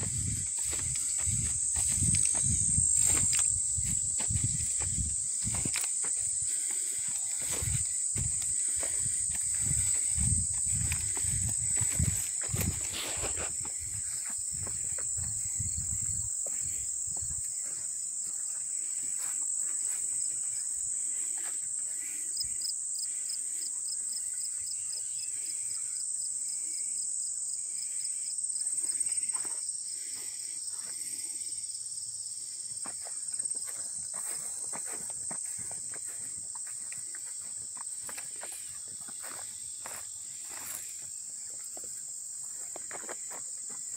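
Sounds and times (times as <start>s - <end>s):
footsteps rustling through grass: 0.0s - 22.2s, 32.9s - 41.8s
crickets chorus: 0.0s - 43.9s.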